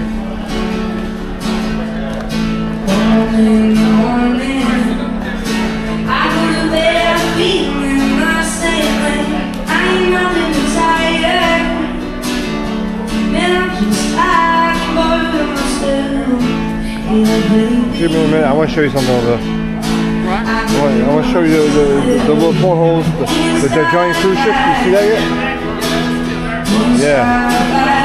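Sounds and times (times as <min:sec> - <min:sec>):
strummed acoustic guitar: 0:00.0 - 0:28.0
person singing: 0:02.8 - 0:12.1, 0:13.3 - 0:19.1, 0:20.2 - 0:28.0.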